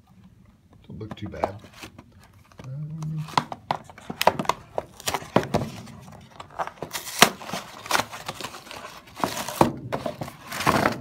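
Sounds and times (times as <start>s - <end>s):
cardboard box crinkling and tapping: 3.2s - 11.0s.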